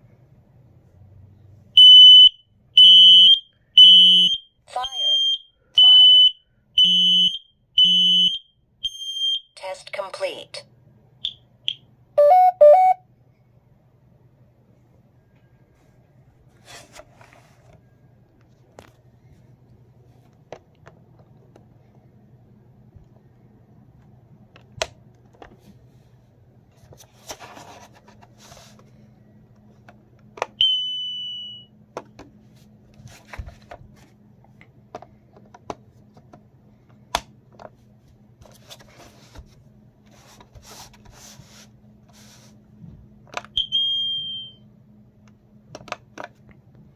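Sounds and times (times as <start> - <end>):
smoke alarm high beeps: 1.8 - 9.6, 11.2 - 13.0, 30.6 - 31.7, 43.6 - 44.6
clicks and knocks of handling: 33.2 - 37.8, 45.3 - 46.6.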